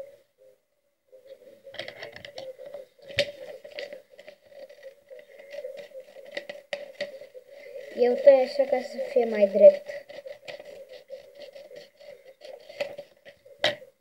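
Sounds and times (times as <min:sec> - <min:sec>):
paper rustling: 0:01.6 - 0:13.8
scissors snipping paper: 0:08.0 - 0:13.8.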